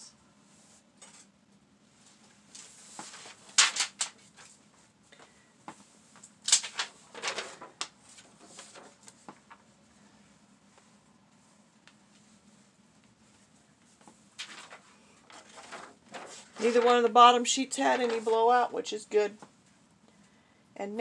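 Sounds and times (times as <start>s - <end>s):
paper rustling: 2.5s - 4.8s, 6.2s - 9.7s, 13.4s - 18.6s.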